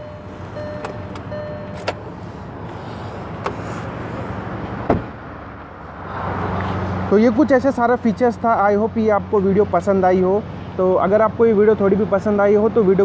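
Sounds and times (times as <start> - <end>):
car door shutting: 0.1 - 5.2.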